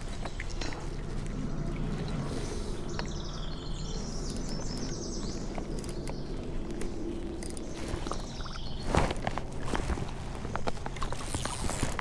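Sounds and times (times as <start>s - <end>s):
birds chirping: 0.0s - 11.8s
low outdoor rumble: 0.0s - 12.0s
small clicks: 4.2s - 8.3s.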